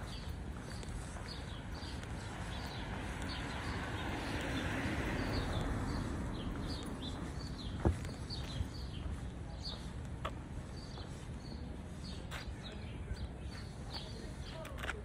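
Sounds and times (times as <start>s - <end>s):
songbirds chirping: 0.0s - 15.0s.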